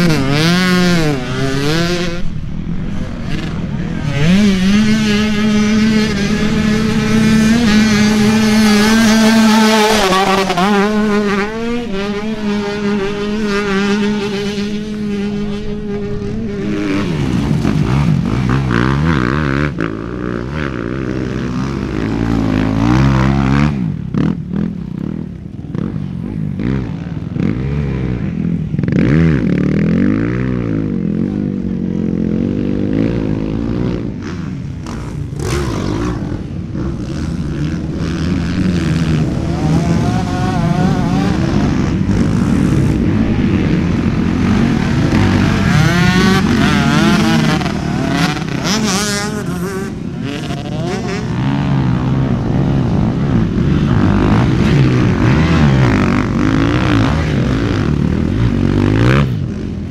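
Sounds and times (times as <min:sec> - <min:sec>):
dirt bike engines revving: 0:00.0 - 0:59.9.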